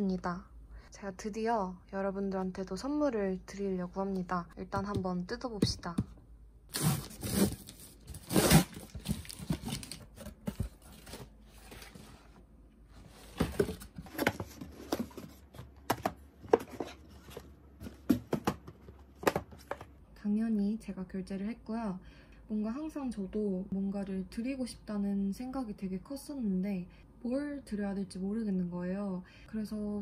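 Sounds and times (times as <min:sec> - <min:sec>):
packing tape ripping off cardboard: 0:06.7 - 0:10.0.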